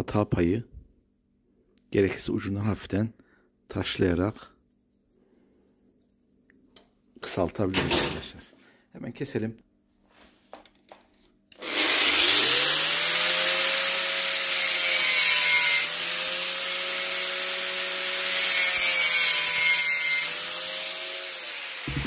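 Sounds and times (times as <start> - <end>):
power tool cutting metal: 11.6 - 22.0.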